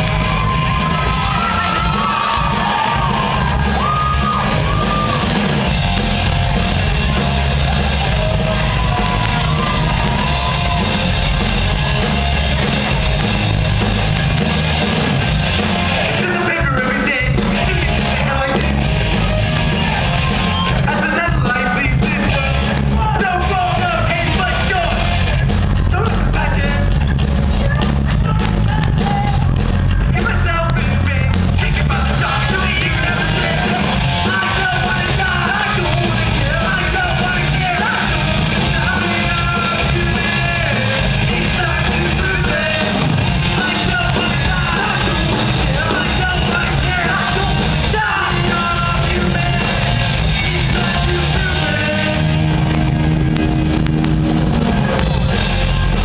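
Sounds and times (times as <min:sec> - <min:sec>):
bass guitar: 0:00.0 - 0:56.0
drum kit: 0:00.0 - 0:56.0
electric guitars: 0:00.0 - 0:56.0
person singing: 0:30.7 - 0:52.8.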